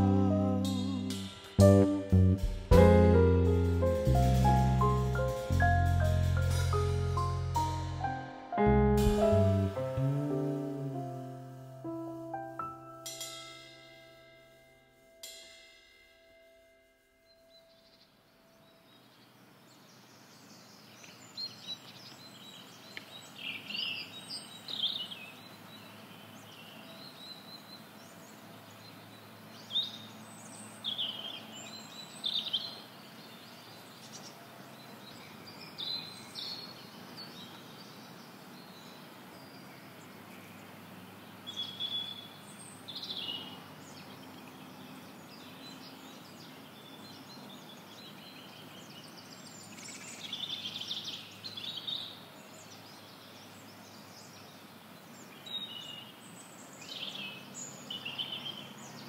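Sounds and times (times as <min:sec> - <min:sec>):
birds chirping and singing: 0:00.0 - 0:08.2
open-air ambience hiss: 0:00.0 - 0:59.0.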